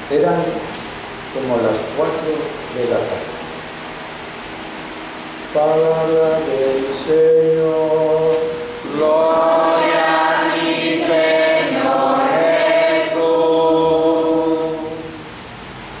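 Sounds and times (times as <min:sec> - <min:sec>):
women singing in unison: 0:08.9 - 0:15.2.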